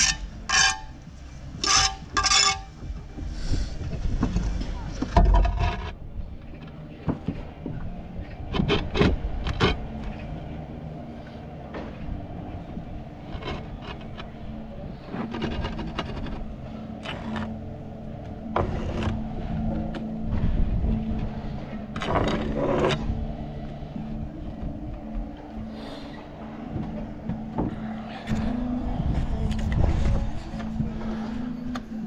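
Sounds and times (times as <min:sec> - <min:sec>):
steady low hum: 0:00.0 - 0:32.0
roof tiles knocking and scraping: 0:01.6 - 0:05.9.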